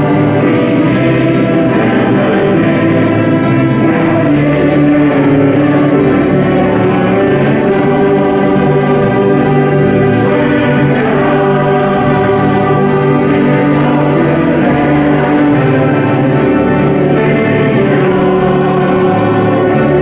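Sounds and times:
accordion: 0.0s - 20.0s
banjo: 0.0s - 20.0s
choir singing gospel song: 0.0s - 20.0s
fiddle: 0.0s - 20.0s
guitar: 0.0s - 20.0s.

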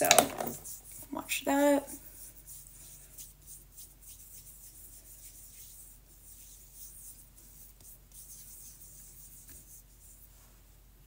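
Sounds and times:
fingertips rubbing skin: 2.0s - 10.3s.

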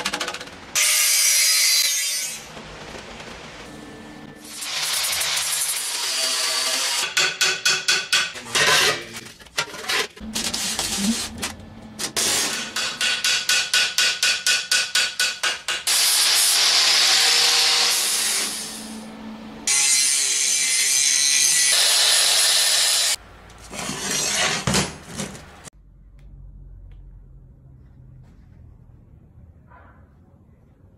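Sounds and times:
angle grinder on steel: 19.7s - 24.6s.

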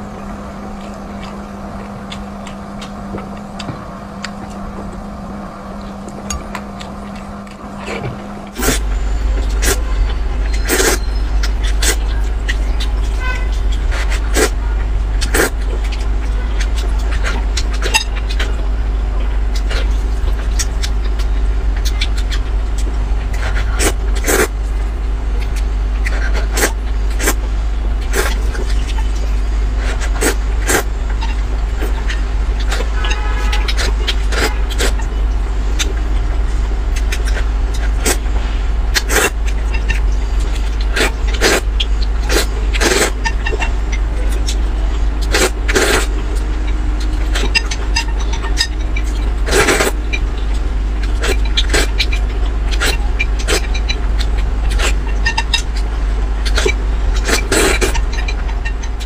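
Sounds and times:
person slurping and chewing noodles: 5.7s - 59.0s
low rumble: 34.0s - 59.0s.

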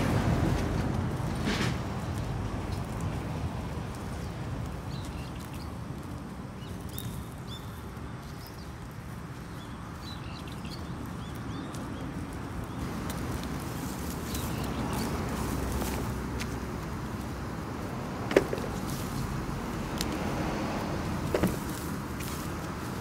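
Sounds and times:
small birds chirping: 3.9s - 20.2s.

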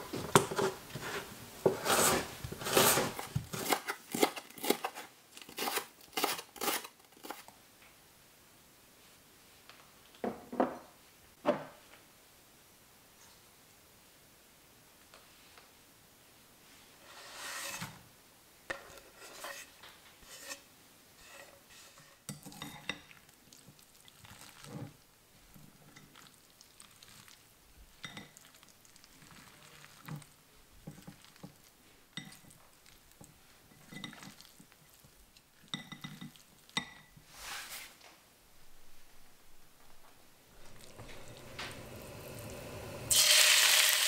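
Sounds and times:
meat scraping swishes: 37.3s - 38.0s.

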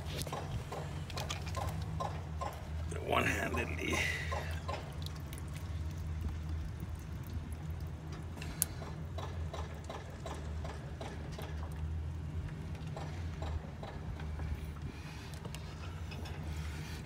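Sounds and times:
oil glugging through funnel: 0.1s - 11.5s.

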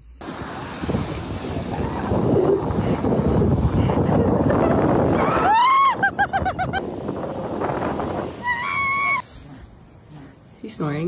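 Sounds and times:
surf breaking on beach: 0.2s - 9.2s
wind buffeting microphone: 0.2s - 11.0s.

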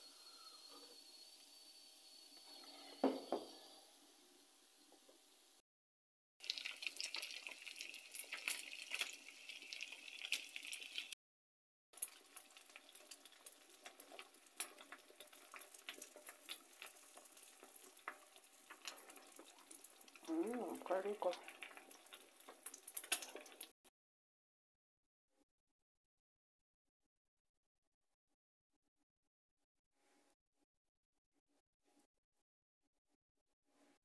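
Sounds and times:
egg sizzling in hot oil: 0.0s - 5.6s, 6.4s - 11.2s, 12.0s - 23.8s
knock: 3.0s - 3.6s.

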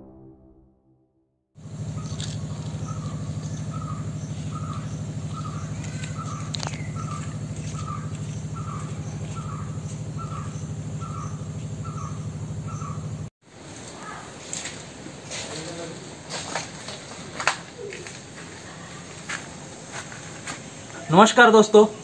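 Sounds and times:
low pulsing hum: 1.6s - 13.3s
high insect trill: 1.6s - 17.1s
bird chirping: 1.8s - 13.3s.

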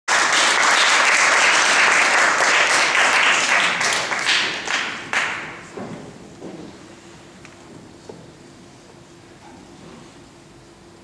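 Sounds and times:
audience applauding: 0.1s - 5.7s.

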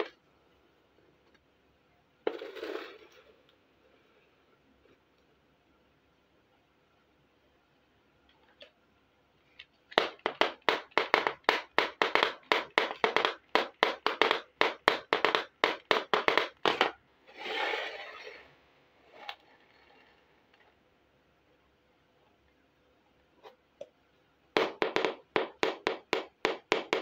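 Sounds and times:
plastic toy tapping on board: 10.0s - 17.0s, 24.6s - 27.0s
plastic toy scraping: 16.7s - 18.5s.

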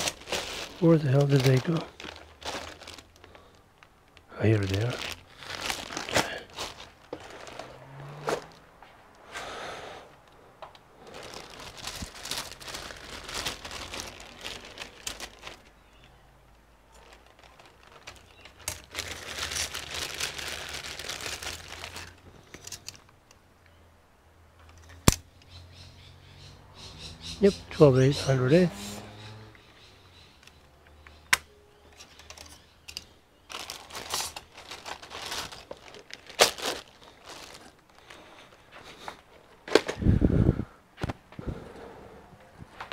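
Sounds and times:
plastic bags crinkling: 0.0s - 8.6s, 11.0s - 16.1s, 16.9s - 23.1s, 32.0s - 40.0s.

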